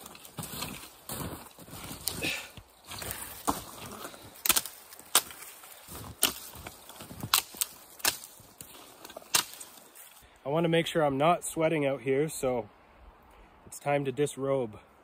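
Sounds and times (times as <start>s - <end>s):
dry twigs snapping: 0.0s - 10.2s.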